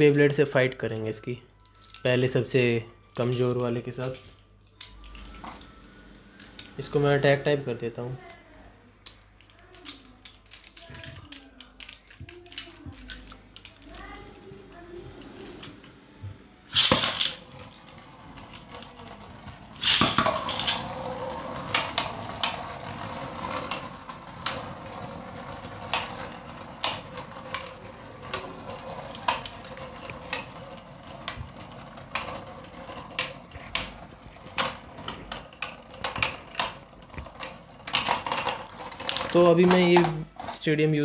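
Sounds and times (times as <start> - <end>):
spinning tops whirring: 16.6 - 40.7
spinning tops launched: 16.7 - 17.5, 19.6 - 33.8
spinning tops clashing: 16.7 - 40.2.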